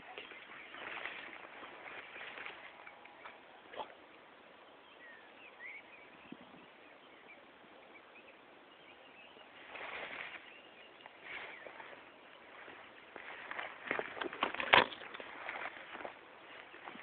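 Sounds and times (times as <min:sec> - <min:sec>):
faint bird chirps: 0:00.0 - 0:13.6
brief rustle: 0:13.4 - 0:16.1.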